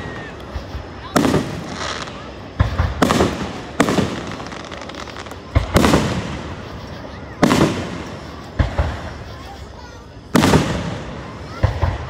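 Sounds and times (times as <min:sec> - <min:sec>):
crackling echoing decay: 0:00.0 - 0:09.3, 0:10.2 - 0:12.0
firework shells bursting: 0:00.0 - 0:09.4.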